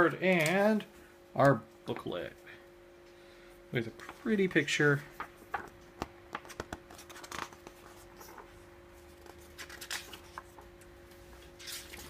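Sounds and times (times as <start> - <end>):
paper pages rustling: 5.1 - 12.0.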